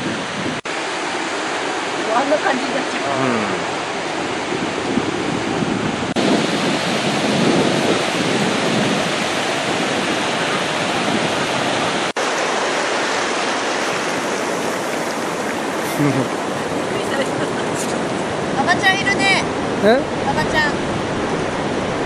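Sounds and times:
wind on microphone: 0:00.0 - 0:00.6, 0:03.2 - 0:12.2
surf rushing: 0:00.0 - 0:22.0.

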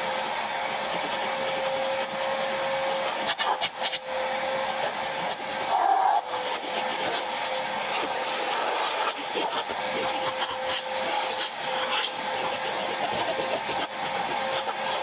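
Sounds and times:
vacuum cleaner whine: 0:00.0 - 0:15.0.

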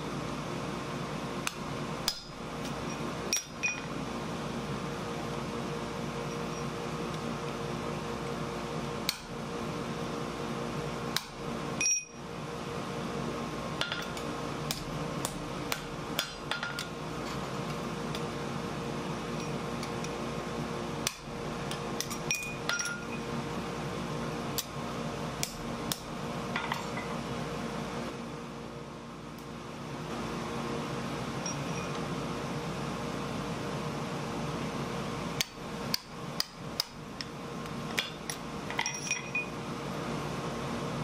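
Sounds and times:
forge blower hum: 0:00.0 - 0:41.0
metallic clinks of tools set down: 0:11.8 - 0:12.2, 0:38.7 - 0:39.5.

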